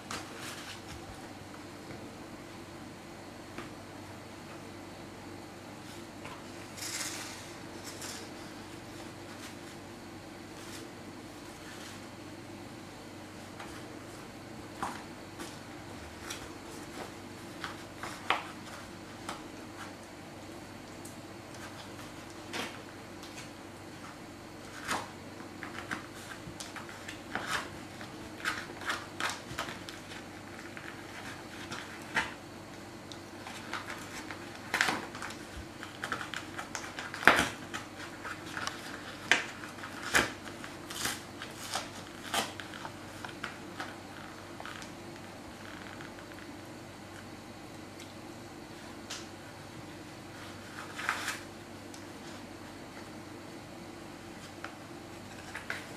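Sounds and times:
dog chewing and ripping paper: 33.4 - 44.9.

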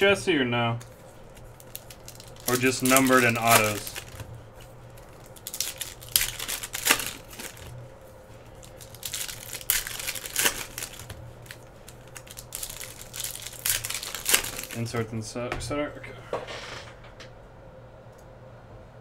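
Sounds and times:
wrappers crinkling and tearing: 0.8 - 15.1.

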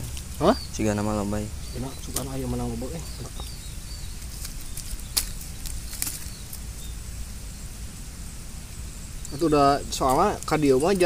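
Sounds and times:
sharp clicks: 4.4 - 6.6.

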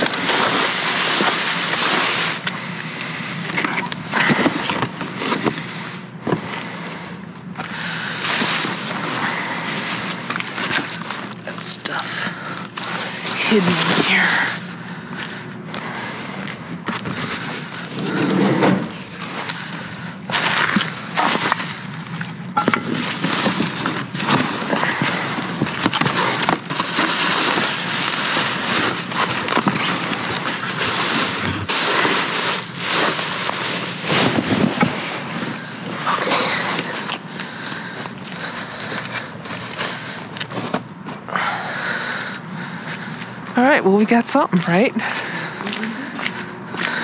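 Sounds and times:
trash rustling and crackling: 0.0 - 6.7, 7.5 - 42.3
debris knocks and clatters: 20.3 - 34.9.

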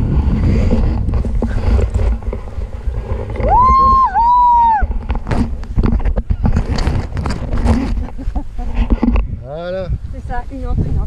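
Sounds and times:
wind on microphone: 0.0 - 11.0
person whooping: 3.4 - 4.9.

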